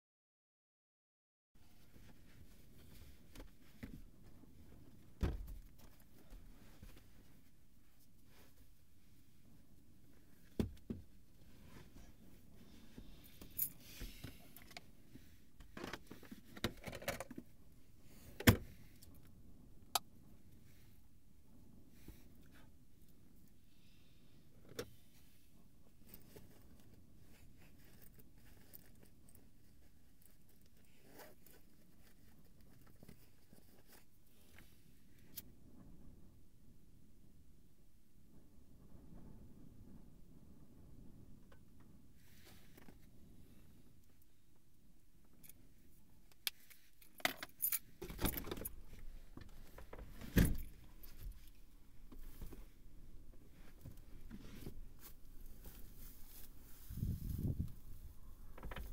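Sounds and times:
clicks and rustles of handling: 10.1 - 17.6, 25.9 - 35.5, 57.6 - 58.9.

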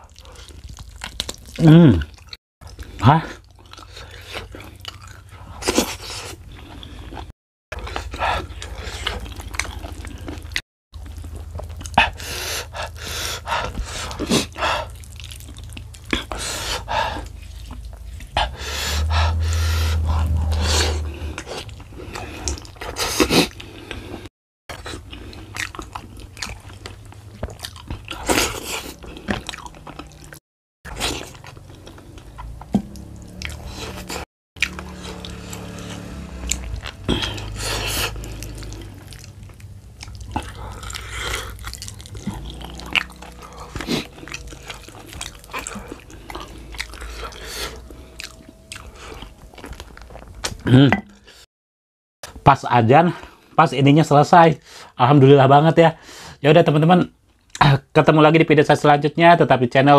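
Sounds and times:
person chewing with wet smacking: 0.0 - 18.6, 21.4 - 50.7
low hum: 14.5 - 22.5, 26.8 - 51.4.

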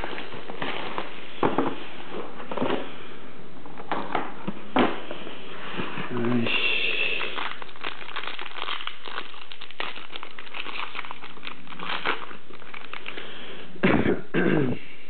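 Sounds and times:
foil wrapper crinkling: 0.0 - 2.8, 6.4 - 13.7.

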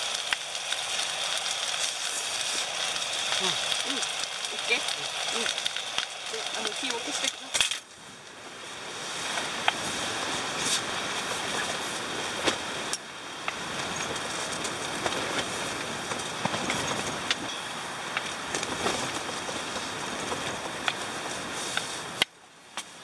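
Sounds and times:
utensils clicking on metal pot: 0.0 - 7.8
strong wind against tent: 0.0 - 23.0.

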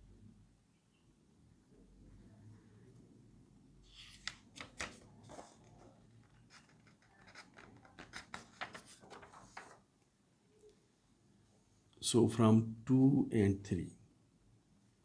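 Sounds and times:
paper crackling and rustling: 3.9 - 9.9.

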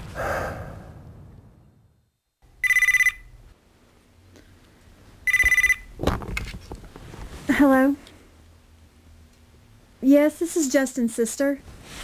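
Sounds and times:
desk telephone ringing: 2.6 - 3.4, 5.3 - 5.9.

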